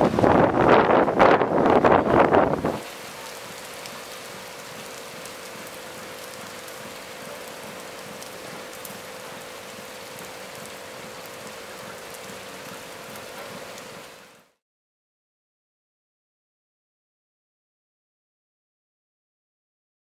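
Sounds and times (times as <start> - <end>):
steady rain: 0.0 - 14.6
raindrops ticking: 2.8 - 14.5.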